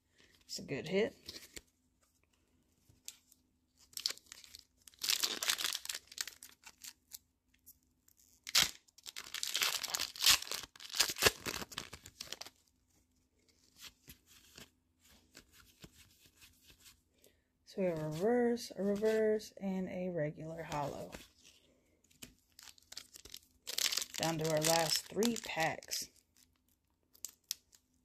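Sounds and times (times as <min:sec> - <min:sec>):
cards being handled: 0:01.1 - 0:08.3, 0:13.5 - 0:17.0, 0:20.8 - 0:27.8
foil wrapper tearing and crinkling: 0:03.8 - 0:07.2, 0:08.2 - 0:12.6, 0:22.1 - 0:28.0.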